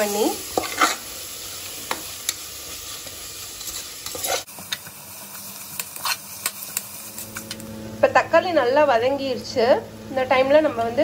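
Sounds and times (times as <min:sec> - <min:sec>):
food sizzling in a pot: 0:00.0 - 0:11.0
metal spoon scraping a pot: 0:00.5 - 0:01.1, 0:03.6 - 0:04.8.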